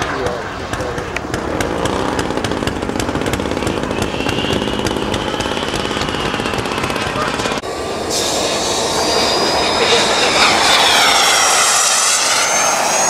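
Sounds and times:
model aircraft engine buzzing: 0.0s - 13.0s
faint high whine: 4.0s - 13.0s.

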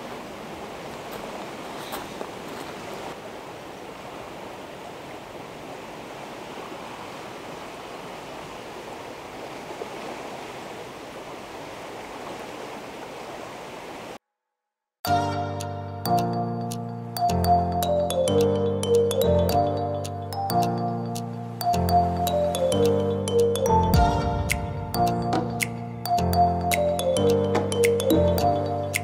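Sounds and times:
river water rushing: 0.0s - 14.2s, 20.6s - 29.0s.

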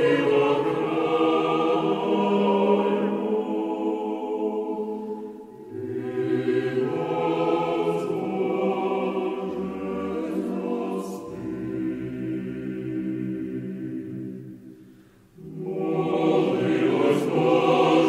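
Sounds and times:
choir singing held chords: 0.0s - 18.0s.

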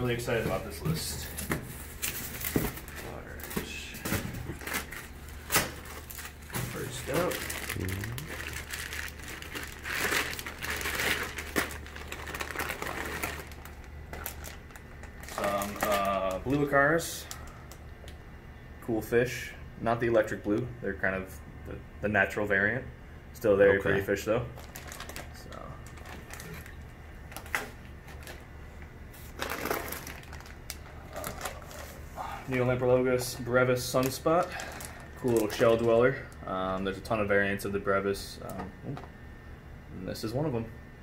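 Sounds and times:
steady low hum: 0.0s - 41.0s
plastic bags crinkling: 1.8s - 17.8s, 24.5s - 28.5s, 29.2s - 36.3s.

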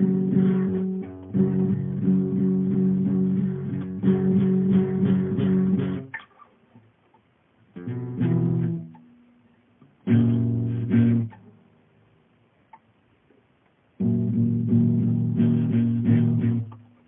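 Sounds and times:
acoustic guitar chords: 0.0s - 6.2s, 7.7s - 9.4s, 10.0s - 11.8s, 14.0s - 17.0s.

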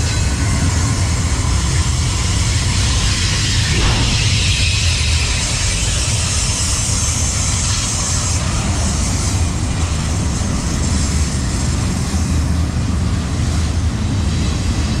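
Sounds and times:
freight train wheels rumbling: 0.0s - 15.0s
high hiss: 3.1s - 12.0s.

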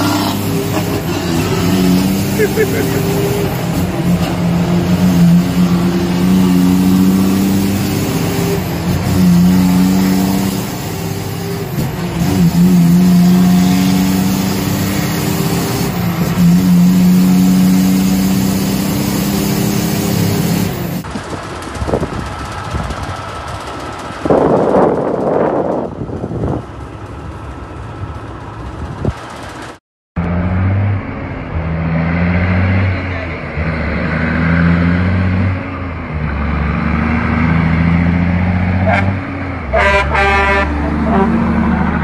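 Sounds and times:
diesel truck engine droning: 0.0s - 42.0s.

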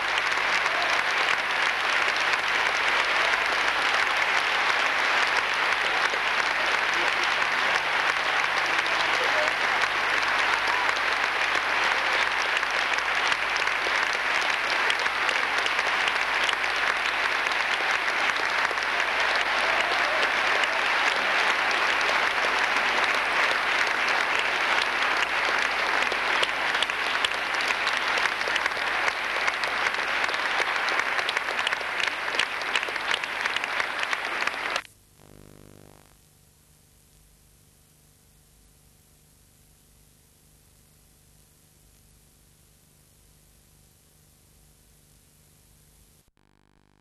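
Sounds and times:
audience applauding: 0.0s - 36.0s.

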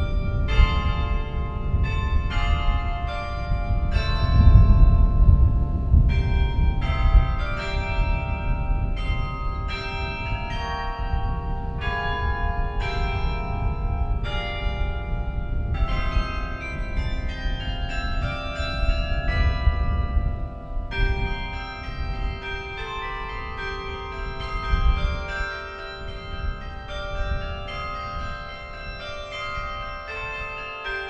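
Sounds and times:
carillon bells playing a melody: 0.0s - 31.0s.

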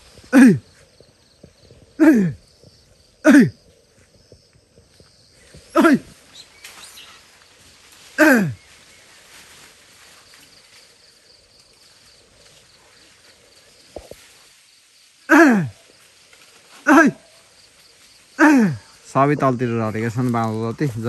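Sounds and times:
person shouting: 5.8s - 6.0s, 15.3s - 15.7s, 16.9s - 17.2s.

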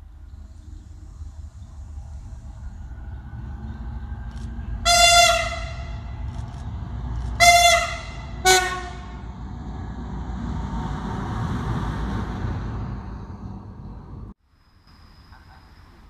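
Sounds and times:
locomotive engine and wheels rumbling: 0.0s - 16.0s
locomotive horn blasts: 4.7s - 6.3s, 7.3s - 9.3s.

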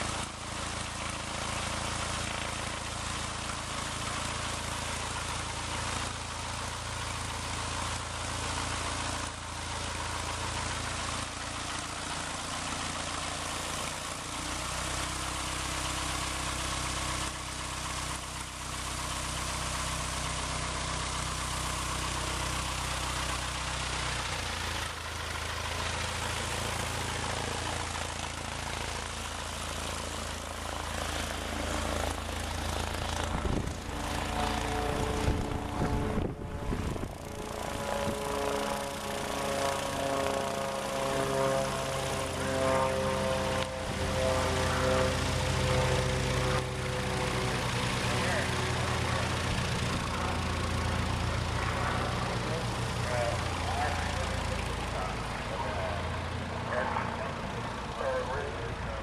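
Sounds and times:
propeller airplane engine running: 0.0s - 59.0s
low rumbling buffets: 22.1s - 59.0s.

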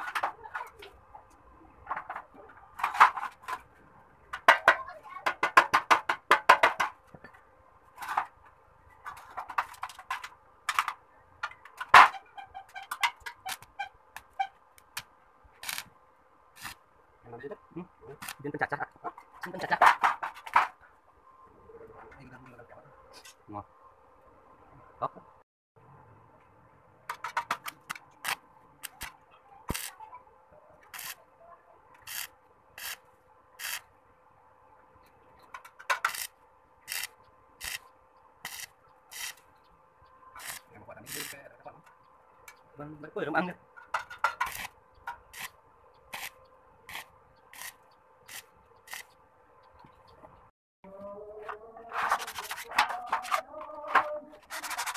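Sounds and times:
clicks and knocks on sheet steel: 4.3s - 7.4s, 27.0s - 29.9s, 43.8s - 45.3s
welding arc burst: 15.6s - 15.9s, 16.6s - 16.8s, 27.9s - 30.0s, 30.9s - 31.2s, 32.0s - 33.9s, 36.0s - 39.4s, 40.4s - 41.5s, 44.4s - 44.7s, 45.3s - 49.1s.

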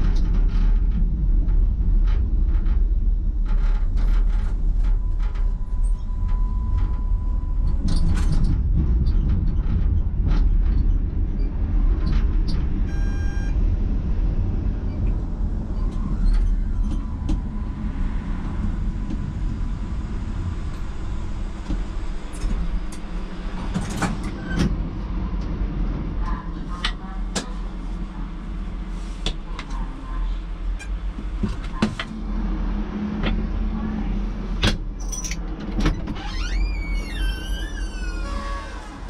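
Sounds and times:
tram rumble: 0.0s - 39.0s
metallic wheel squeal: 37.1s - 39.0s.

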